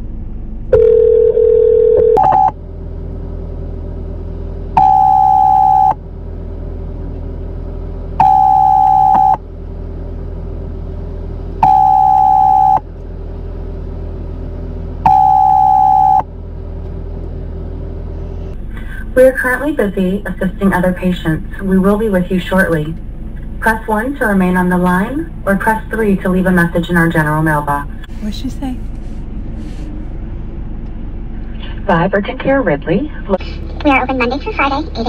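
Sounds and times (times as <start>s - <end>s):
steady low hum: 0.0s - 35.0s
steady telephone tone: 0.7s - 2.6s, 4.8s - 6.0s, 8.2s - 9.4s, 11.6s - 12.8s, 15.0s - 16.3s
loud electronic beeps: 2.1s - 2.6s, 4.8s - 6.0s, 8.2s - 9.4s, 11.6s - 12.8s, 15.0s - 16.3s.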